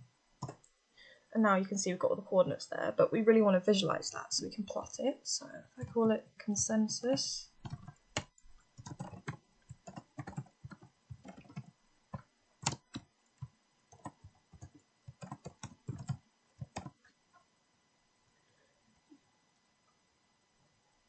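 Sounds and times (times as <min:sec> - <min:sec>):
typing on computer keyboard: 0:00.4 - 0:00.7, 0:07.6 - 0:17.0.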